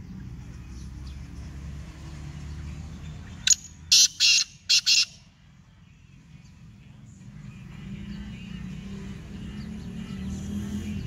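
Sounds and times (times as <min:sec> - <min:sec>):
bird harsh call: 0:03.4 - 0:05.2.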